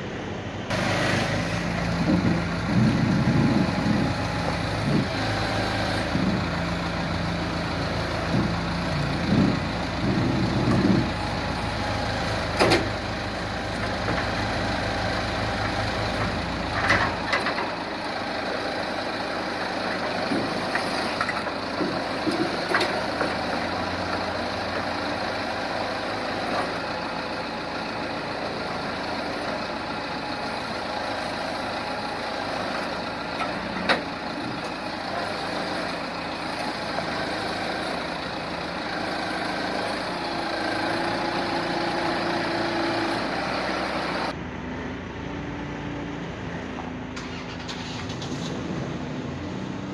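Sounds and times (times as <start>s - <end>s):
heavy machine engine rumble: 0.0s - 49.9s.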